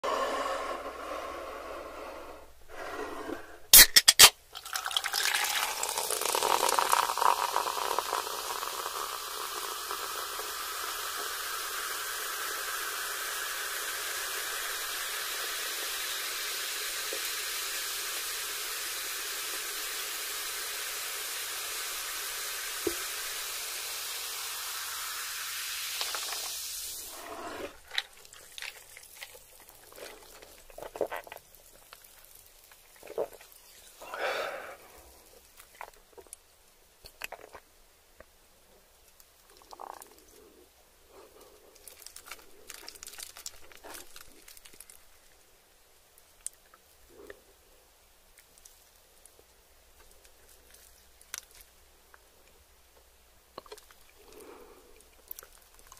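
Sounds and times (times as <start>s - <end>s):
sips through a straw: 0.0s - 3.9s, 26.0s - 28.2s
soda fizzing into glass: 3.7s - 34.1s.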